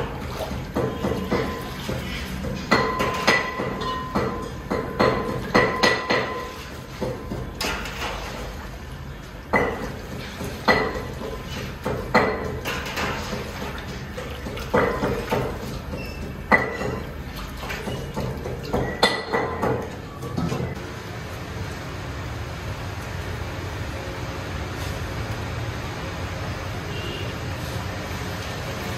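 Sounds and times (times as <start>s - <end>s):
water sloshing: 0.0s - 20.9s
metal skimmer clanking against pot: 0.7s - 8.4s, 9.6s - 20.8s.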